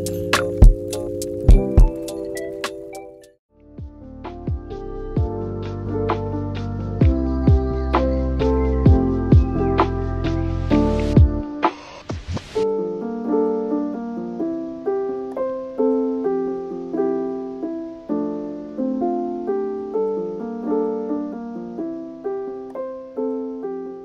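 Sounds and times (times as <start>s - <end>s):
gentle piano tune: 0.0s - 11.6s, 12.6s - 24.0s.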